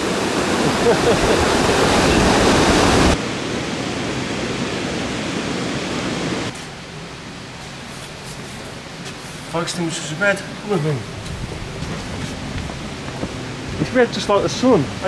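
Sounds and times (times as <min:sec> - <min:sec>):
water rushing over weir: 0:00.0 - 0:11.2.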